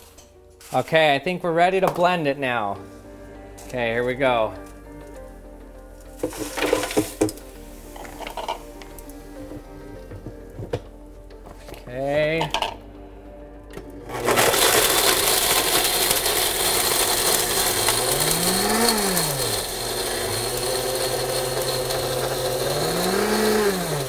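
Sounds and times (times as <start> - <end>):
blender running at high speed: 14.1 - 24.0.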